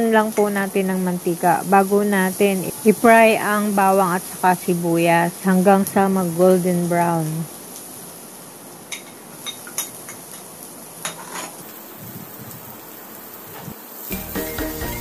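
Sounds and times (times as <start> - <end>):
garlic and onion sizzling in oil: 0.0 - 15.0
background music: 14.1 - 15.0.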